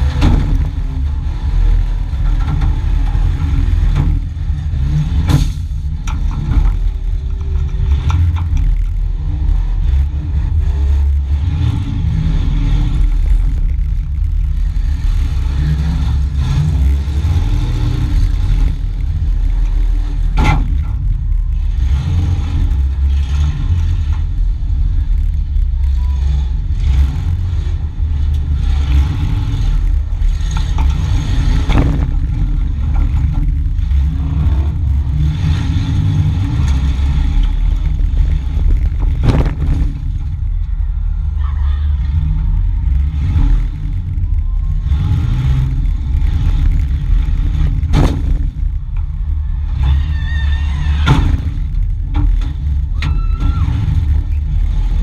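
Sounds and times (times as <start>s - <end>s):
vehicle crash impacts: 0.0s - 10.1s, 11.9s - 55.0s
car body rattling: 0.0s - 55.0s
car engine revving hard: 7.7s - 40.8s.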